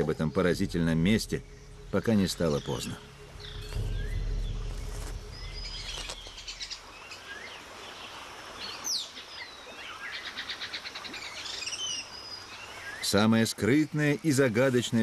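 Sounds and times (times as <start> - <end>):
birds chirping and whistling: 0.0 - 7.6
low rumble: 0.3 - 7.1.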